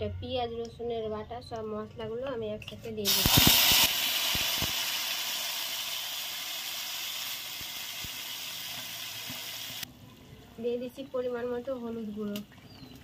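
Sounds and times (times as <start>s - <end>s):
spice paste sizzling in oil: 3.1s - 9.9s.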